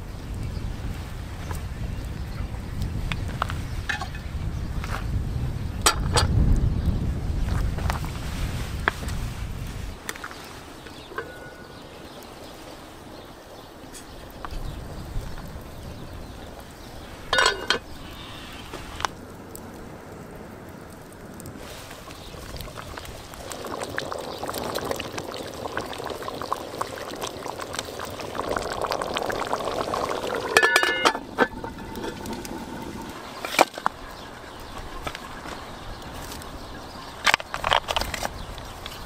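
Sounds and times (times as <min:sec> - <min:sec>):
water hissing in hot cauldron: 0:06.6 - 0:39.0
metallic clanks from cauldron: 0:17.3 - 0:17.9, 0:30.4 - 0:32.6.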